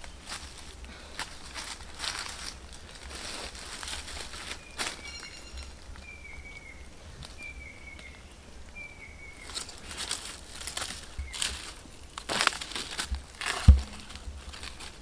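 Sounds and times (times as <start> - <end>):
bare feet crunching on dry leaves: 0.0 - 6.2, 8.8 - 15.0
bird whistled call: 4.6 - 6.8, 7.4 - 9.6.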